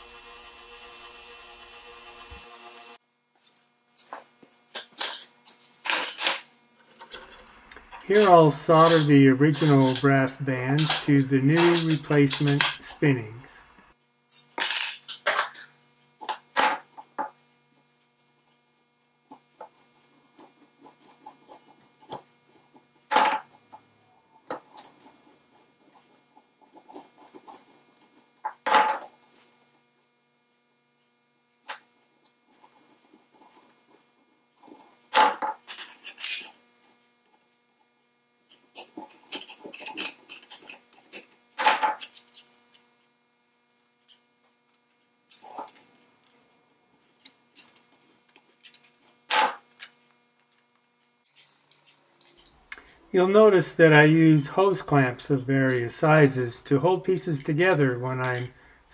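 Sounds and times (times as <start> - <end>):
metal parts scraping and rattling: 3.4 - 13.7, 14.3 - 16.8, 19.3 - 29.5, 32.5 - 37.4, 38.4 - 42.9, 44.0 - 52.6.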